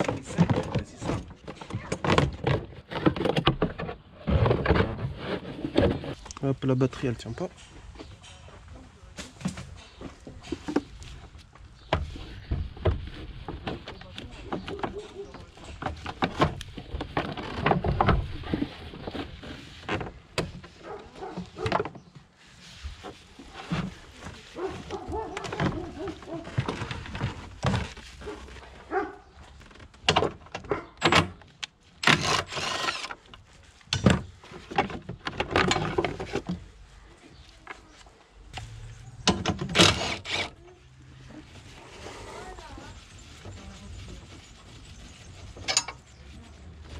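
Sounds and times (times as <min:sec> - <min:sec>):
knocks and plastic clatter: 0:00.0 - 0:06.4, 0:11.8 - 0:22.1, 0:23.6 - 0:28.4, 0:29.5 - 0:32.7, 0:33.3 - 0:36.7.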